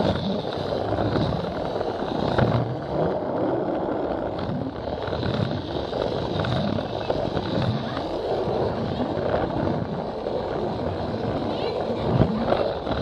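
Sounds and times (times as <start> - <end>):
toy train motor whir: 0.0 - 3.1, 4.0 - 13.0
crowd chatter: 5.8 - 13.0.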